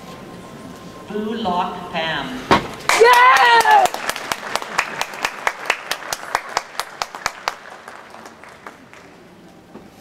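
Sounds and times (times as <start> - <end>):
audience applause: 2.9 - 9.4.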